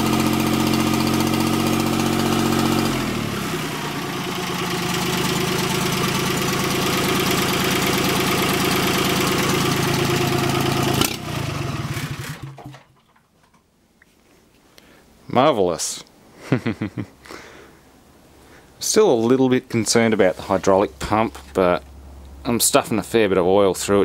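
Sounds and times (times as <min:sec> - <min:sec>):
diesel tractor engine running: 0:00.0 - 0:12.8.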